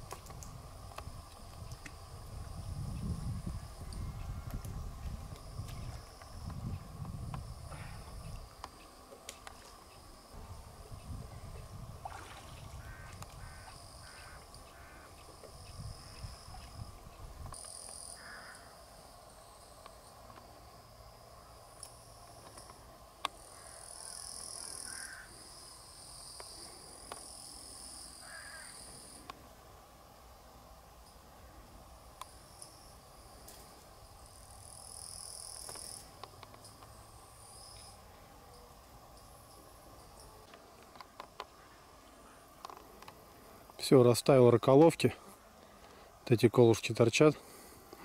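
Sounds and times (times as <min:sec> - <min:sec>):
bird calling: 0:12.5 - 0:16.7, 0:23.5 - 0:25.4, 0:28.2 - 0:28.9.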